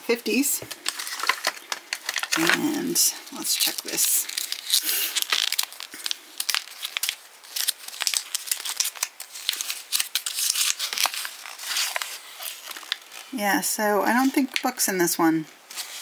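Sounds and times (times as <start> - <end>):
paper leaflet crinkling: 0.3 - 13.4, 15.7 - 16.0.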